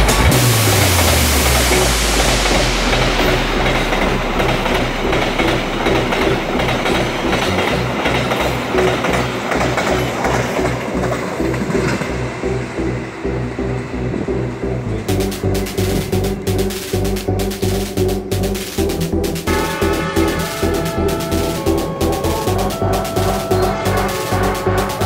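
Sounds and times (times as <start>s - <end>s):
train wheels clattering over rails: 3.2s - 12.1s.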